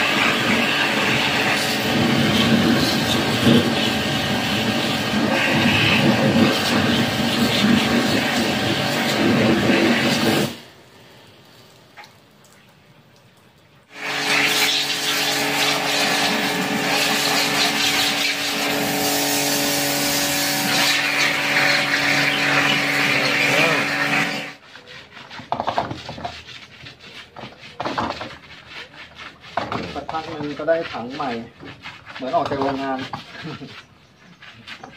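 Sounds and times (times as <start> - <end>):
pressure washer running: 0.0 - 11.2, 13.9 - 24.6
scrubbing tub by hand: 0.0 - 34.9
water spraying on plastic tub: 0.0 - 34.9.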